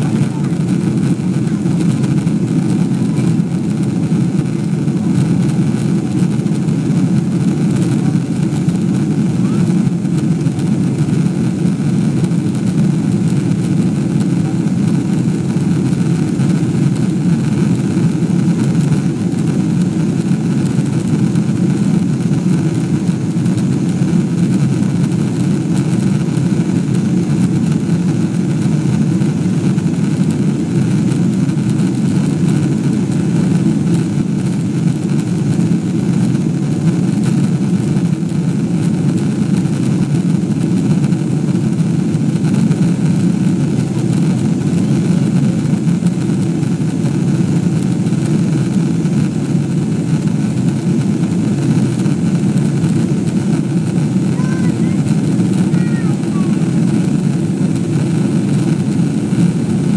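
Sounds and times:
jet engine drone in cabin: 0.0 - 59.9.

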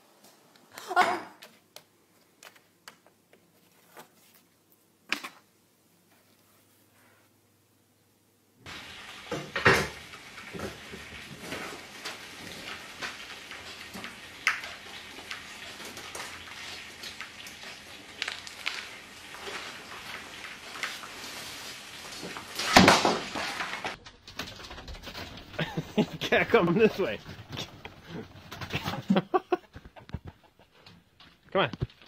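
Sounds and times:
rack falling with clatter: 9.3 - 11.8, 22.3 - 26.2.

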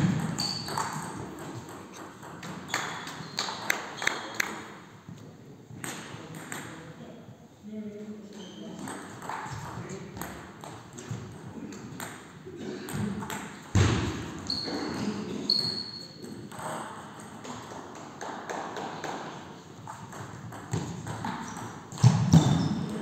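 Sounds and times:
shoe soles squeaking: 0.4 - 1.0, 14.4 - 16.2.

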